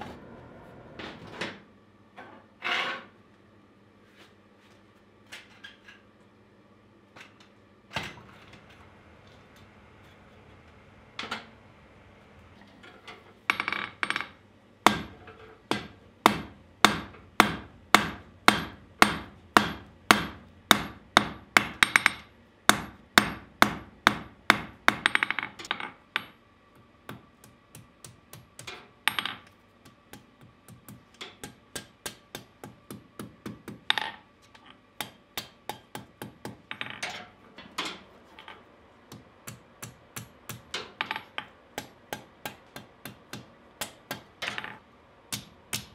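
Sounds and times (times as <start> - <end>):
hammer striking iron on anvil: 13.5 - 26.4, 27.1 - 34.2, 35.0 - 37.0, 39.1 - 45.9.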